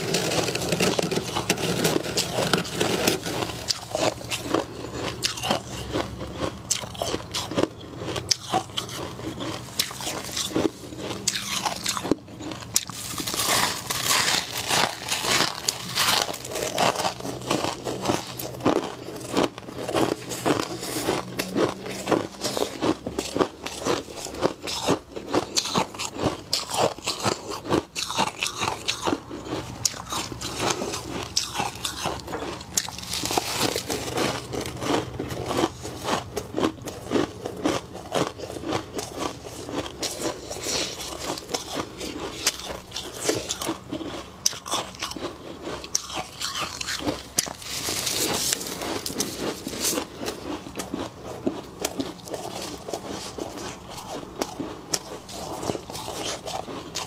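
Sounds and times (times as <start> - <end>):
frost crunching: 0.0 - 57.0.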